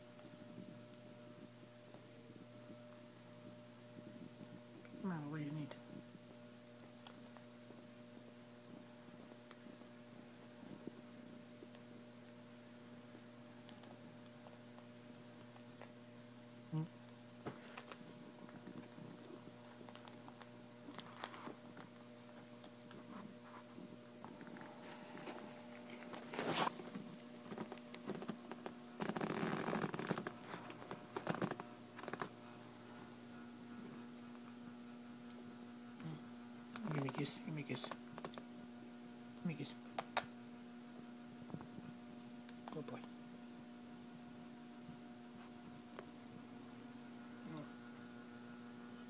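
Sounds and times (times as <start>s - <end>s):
faint steady hum: 0.0s - 49.0s
fur rubbing on microphone: 23.0s - 33.4s.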